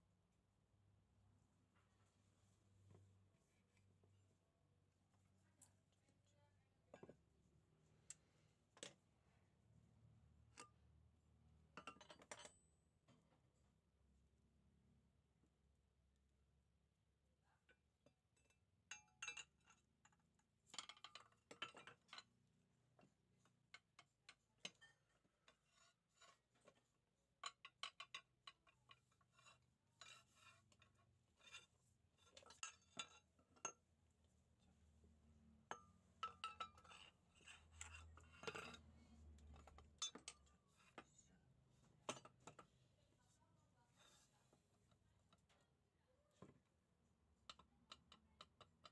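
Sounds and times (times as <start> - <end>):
metallic clinks and taps: 35.6 - 41.3.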